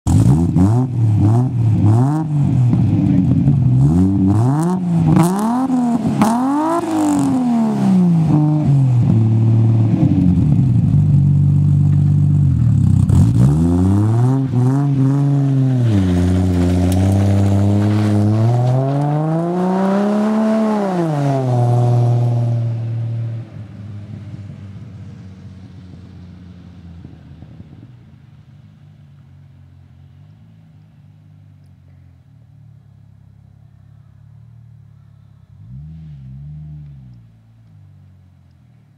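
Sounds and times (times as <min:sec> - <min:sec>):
turbo car engine revving: 0:00.1 - 0:26.4.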